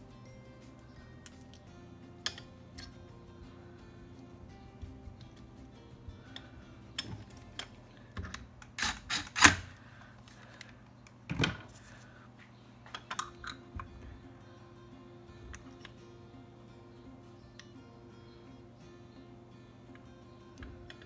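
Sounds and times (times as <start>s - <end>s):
quiet guitar music: 0.0s - 8.1s, 12.6s - 21.0s.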